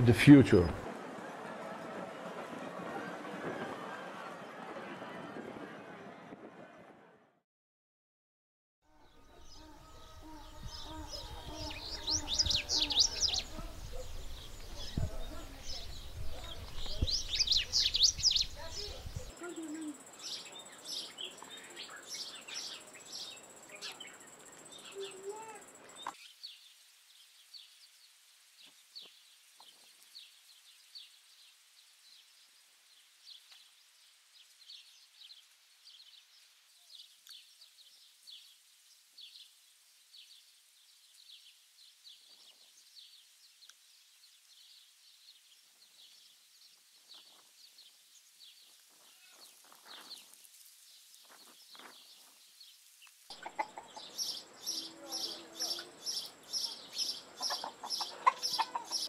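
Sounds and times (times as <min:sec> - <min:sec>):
faint high chirping: 0:09.0 - 0:26.0
chickens clucking: 0:53.3 - 0:54.4, 0:57.4 - 0:59.0.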